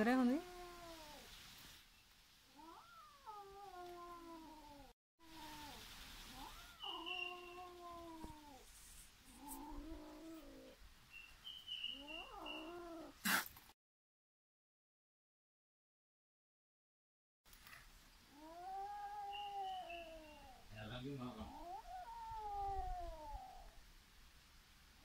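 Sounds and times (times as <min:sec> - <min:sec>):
kitten yowling: 0:02.6 - 0:08.7, 0:12.0 - 0:13.4, 0:18.4 - 0:20.7, 0:21.4 - 0:23.8.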